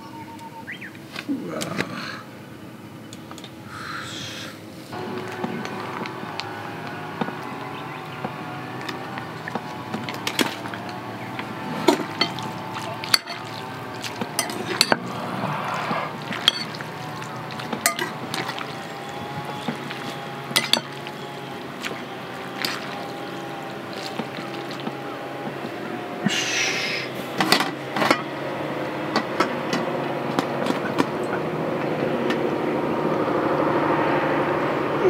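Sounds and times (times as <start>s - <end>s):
wet sticky noodle mixing: 4.9s - 26.3s
metal utensils clinking on bowl: 8.7s - 15.2s, 16.2s - 25.0s.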